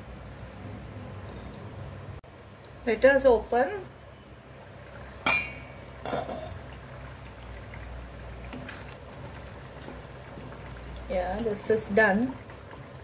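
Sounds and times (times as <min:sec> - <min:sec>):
curry bubbling in a pan: 0:04.5 - 0:13.0
glass lid clinking: 0:05.2 - 0:06.6.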